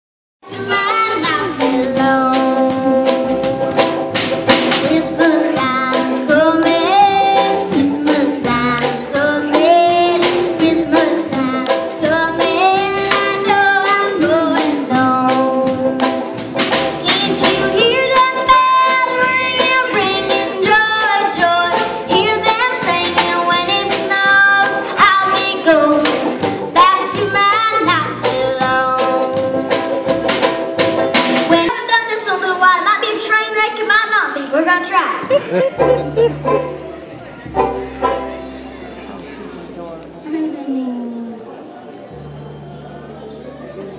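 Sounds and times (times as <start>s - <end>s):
girl singing: 0.4s - 3.7s, 4.7s - 16.2s, 17.0s - 29.8s, 31.5s - 35.6s
acoustic bluegrass band: 0.4s - 43.9s.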